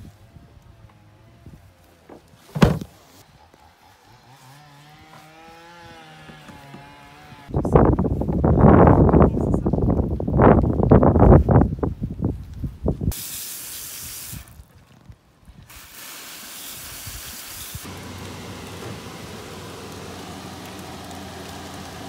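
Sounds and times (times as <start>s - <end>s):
hose nozzle spray hissing: 13.1s - 14.6s, 15.6s - 17.9s
water at rolling boil: 13.1s - 22.0s.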